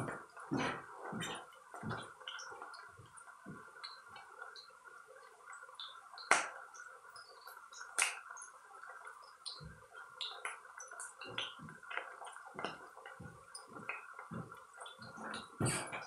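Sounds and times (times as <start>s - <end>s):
sharp pops of frying oil: 5.8s - 6.6s.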